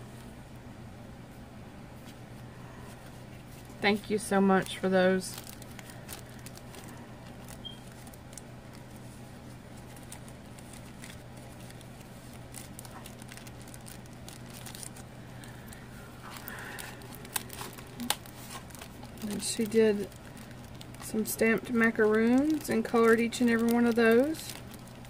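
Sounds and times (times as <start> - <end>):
steady low hum: 0.0 - 25.0
plastic pocket crinkling: 3.6 - 25.0.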